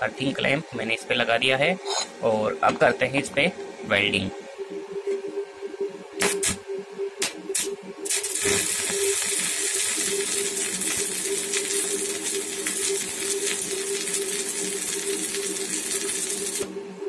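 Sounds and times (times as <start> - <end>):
steady hum: 0.0 - 17.0
welding arc crackling: 6.2 - 6.6, 7.2 - 16.7.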